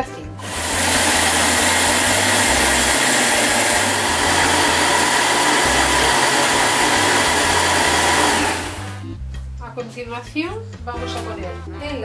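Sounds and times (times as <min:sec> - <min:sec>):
food processor motor whirring: 0:00.4 - 0:09.0.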